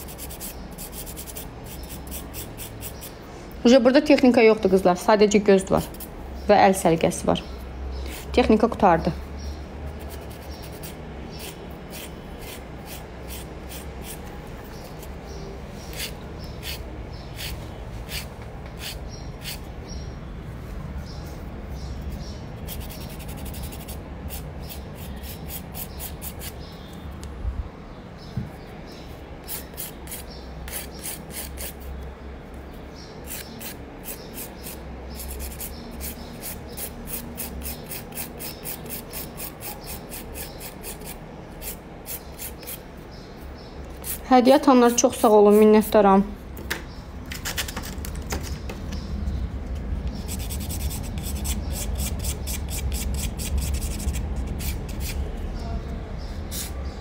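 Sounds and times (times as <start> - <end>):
nail file rasping: 0.0 - 3.2, 10.0 - 14.3, 22.7 - 26.6, 29.5 - 31.8, 33.2 - 42.8, 50.1 - 55.2.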